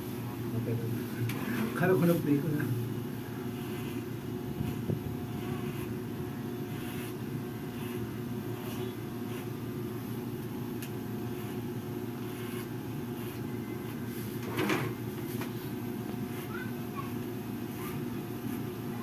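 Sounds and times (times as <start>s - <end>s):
hair clippers buzzing: 3.4s - 9.5s, 10.8s - 13.4s, 17.1s - 19.0s.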